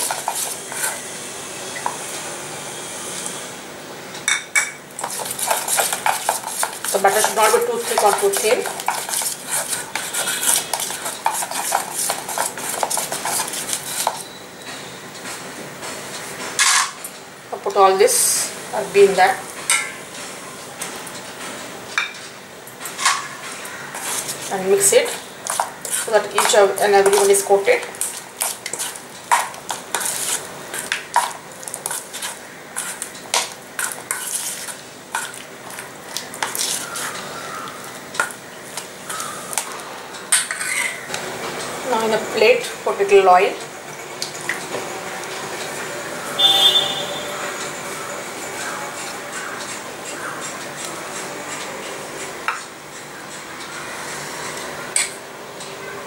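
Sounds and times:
spoon scraping metal bowl: 0.0s - 1.1s, 5.0s - 14.4s, 23.9s - 37.3s.

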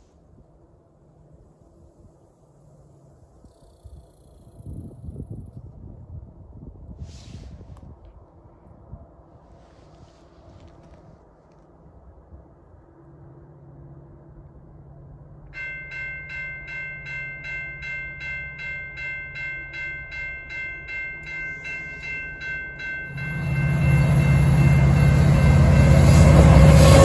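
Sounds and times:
freight train rumbling: 12.8s - 27.0s
crossing warning bell ringing: 15.5s - 27.0s.

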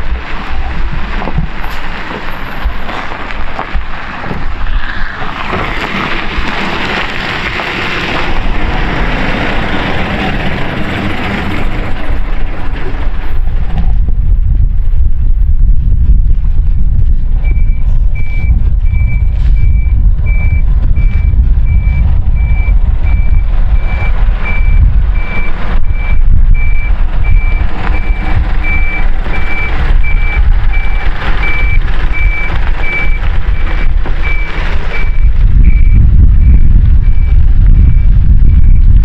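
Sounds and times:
diesel engine running: 0.0s - 39.0s
reversing alarm beeping: 17.4s - 39.0s.

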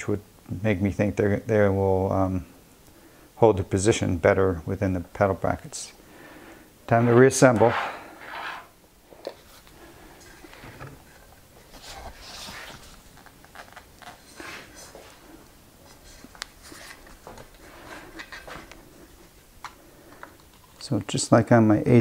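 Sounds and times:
soft rustling: 6.9s - 19.4s.

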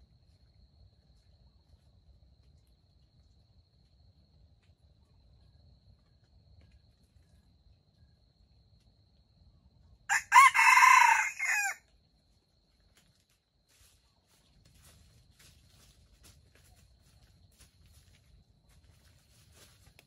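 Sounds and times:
rooster crowing: 10.1s - 11.8s.

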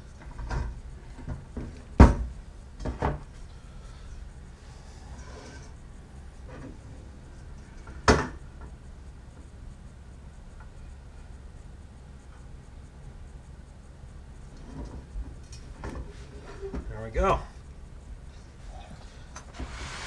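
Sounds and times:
metal parts rubbing and scraping: 5.0s - 5.8s, 16.0s - 16.9s.

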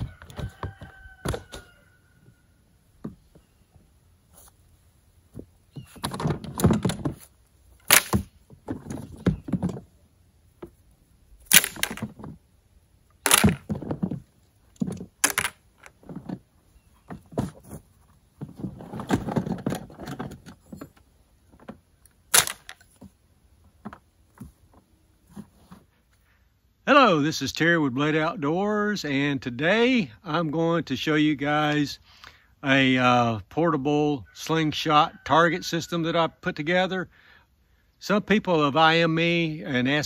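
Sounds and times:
rustling: 0.0s - 26.4s
plastic pipe pieces clattering: 11.5s - 12.4s, 13.2s - 16.4s, 21.6s - 23.1s.

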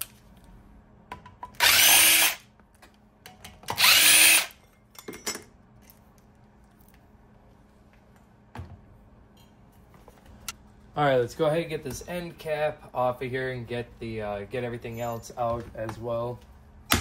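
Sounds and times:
cordless power driver: 1.6s - 2.4s, 3.7s - 4.5s.

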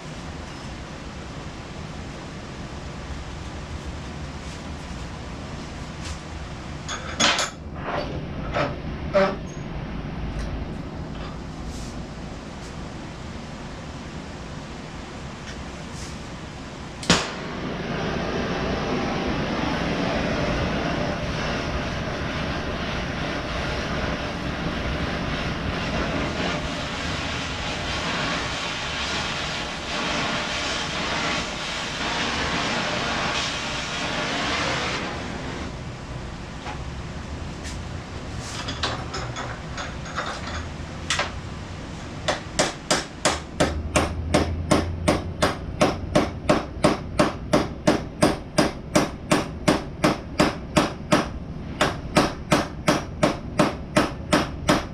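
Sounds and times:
hammer striking metal: 42.3s - 54.9s.

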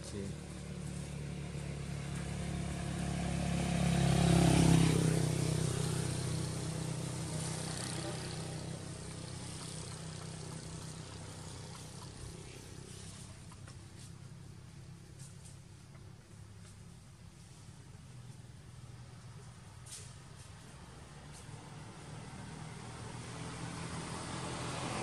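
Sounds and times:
vehicle engine passing by: 0.0s - 25.0s.

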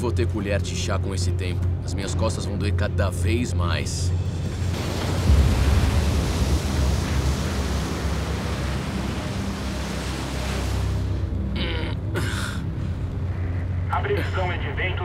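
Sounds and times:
low steady hum: 0.7s - 15.0s
wind: 4.1s - 11.6s
storm waves crashing on deck: 4.4s - 11.5s.

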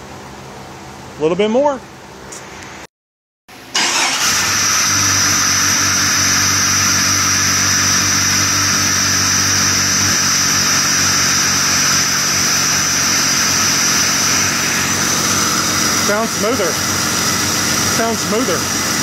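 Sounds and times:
car engine starting and running: 3.5s - 19.0s
high steady whine: 4.9s - 19.0s.

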